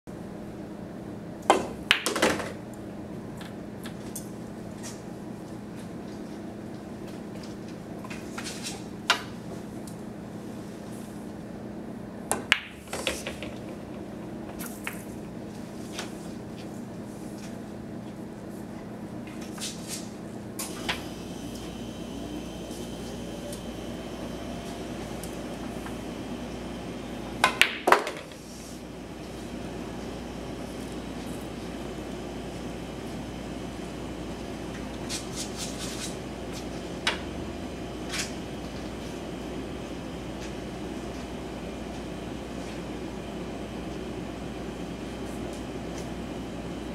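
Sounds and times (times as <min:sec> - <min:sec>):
steady low hum: 0:00.1 - 0:46.9
cue tip striking ball: 0:01.5 - 0:02.2, 0:12.3 - 0:14.0, 0:27.4 - 0:28.3
pool balls clattering: 0:01.5 - 0:02.6, 0:12.3 - 0:15.2, 0:27.4 - 0:28.4
pool balls clicking: 0:01.5 - 0:02.6, 0:12.3 - 0:15.1, 0:27.4 - 0:28.4.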